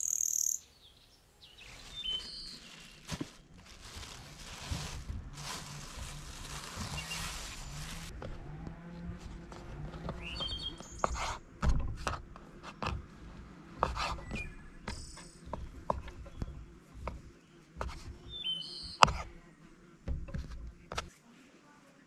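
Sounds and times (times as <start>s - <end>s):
birds chirping: 0.0s - 3.6s, 6.5s - 8.1s, 10.0s - 11.3s, 12.6s - 20.2s
knocks and scrapes: 1.6s - 21.1s.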